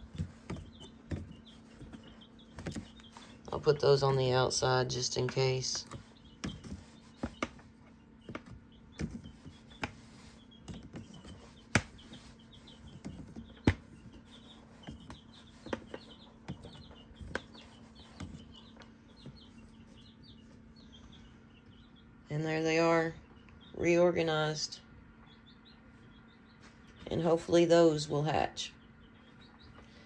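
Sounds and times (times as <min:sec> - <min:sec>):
eggs knocking in plastic trays: 0:00.0 - 0:20.4.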